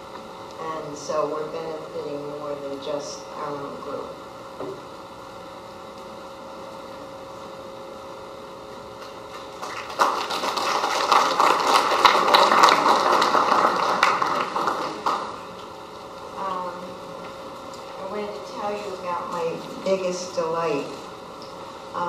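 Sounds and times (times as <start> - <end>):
audience applauding: 9.5 - 15.4.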